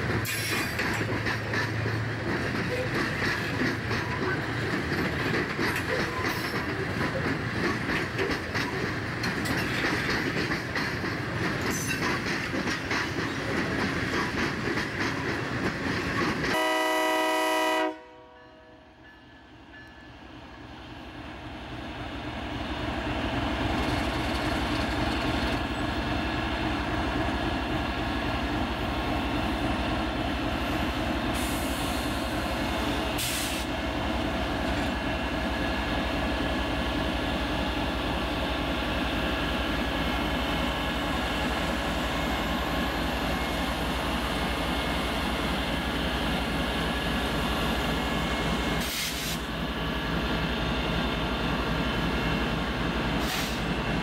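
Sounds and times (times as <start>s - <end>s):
freight wagons rattling on track: 0.0s - 16.6s
diesel locomotive engine rumble: 0.0s - 54.0s
locomotive air horn: 16.5s - 18.8s.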